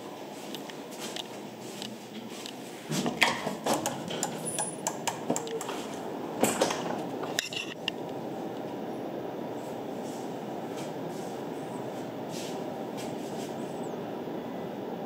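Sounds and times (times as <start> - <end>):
light clicks and clattering knocks: 1.1 - 8.0.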